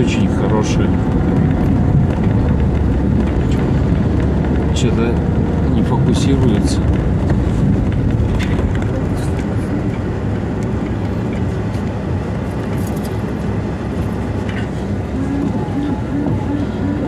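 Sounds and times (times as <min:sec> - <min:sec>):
car rumbling on dirt road: 0:00.0 - 0:17.0
light knocks and rattles: 0:00.3 - 0:12.0.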